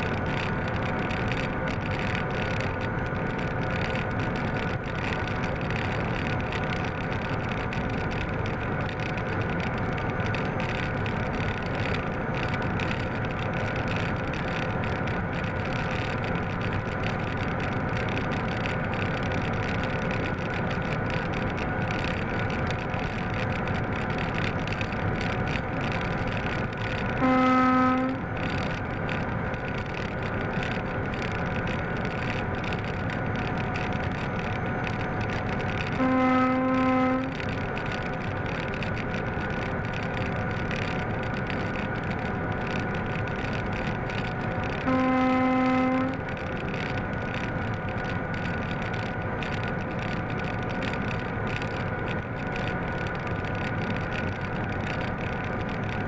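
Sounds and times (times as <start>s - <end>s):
diesel locomotive engine drone: 0.0s - 56.0s
rail noise: 0.0s - 56.0s
horn blast: 27.2s - 28.2s, 36.0s - 37.3s.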